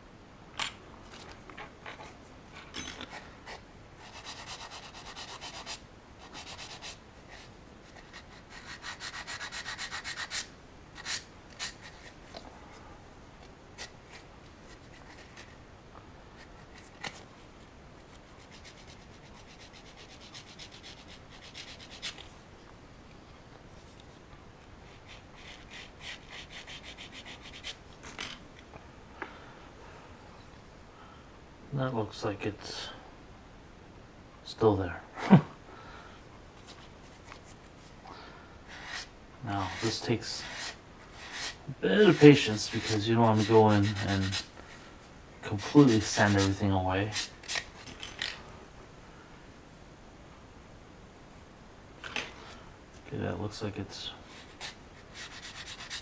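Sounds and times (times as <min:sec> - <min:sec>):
sandpaper sanding strokes: 0:04.0 - 0:12.1, 0:24.9 - 0:27.8, 0:38.7 - 0:44.5, 0:45.5 - 0:47.6, 0:54.4 - 0:56.0.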